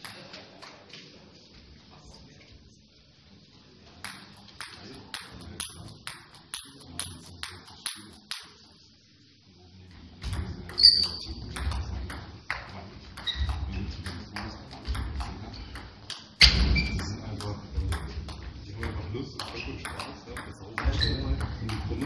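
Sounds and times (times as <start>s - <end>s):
table tennis ball bouncing: 0.0s - 0.9s, 4.0s - 8.6s, 10.2s - 22.0s.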